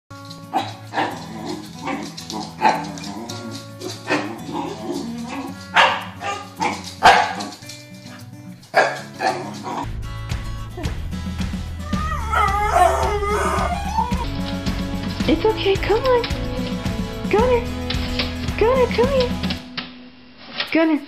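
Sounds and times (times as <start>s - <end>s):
background music: 0.1s - 20.3s
dog barking: 0.5s - 9.8s, 11.9s - 14.3s.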